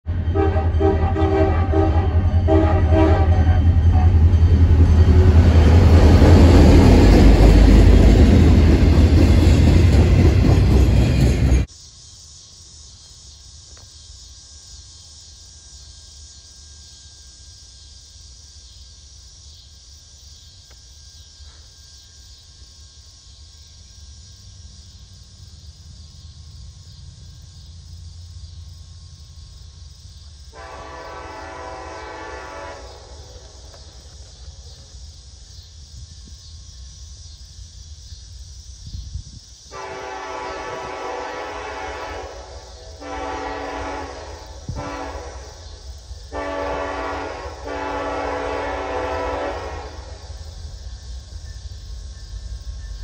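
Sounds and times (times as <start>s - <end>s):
distant train rumble: 0.0s - 53.0s
train engine and wheel noise: 0.0s - 53.0s
locomotive air horn: 0.1s - 5.9s, 30.5s - 33.6s, 39.7s - 50.2s.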